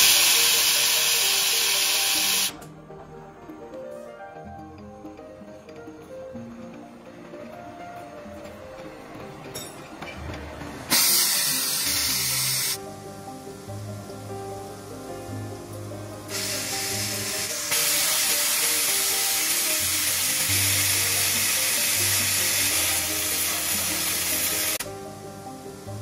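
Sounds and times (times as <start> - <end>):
gas burner flame hissing: 0.0 - 2.6, 10.9 - 12.8, 16.2 - 24.9
background music: 0.0 - 26.0.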